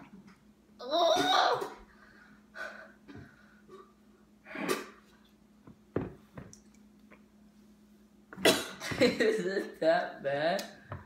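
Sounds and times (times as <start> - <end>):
boy gagging and retching: 0.8 - 1.8.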